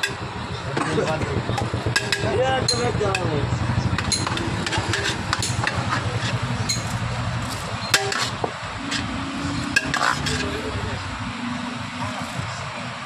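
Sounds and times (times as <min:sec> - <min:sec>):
steady low background hum: 0:00.0 - 0:11.4
metal clinking on cooking pot: 0:04.0 - 0:09.1.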